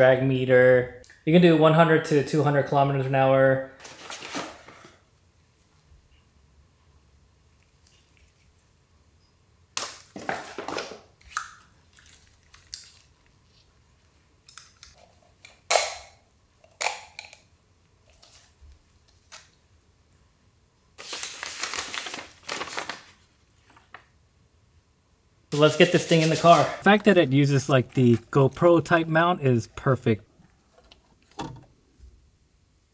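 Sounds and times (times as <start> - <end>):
paper sheet rustling: 3.8 - 4.8, 21.0 - 24.1, 25.6 - 29.0
plastic packaging rustling: 3.8 - 4.9, 21.0 - 24.1, 25.6 - 29.0.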